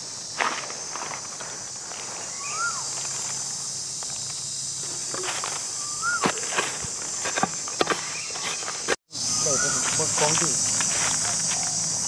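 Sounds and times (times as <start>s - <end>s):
insects droning: 0.0s - 12.0s
whistled calls: 2.2s - 3.1s, 4.8s - 6.7s, 7.3s - 12.0s.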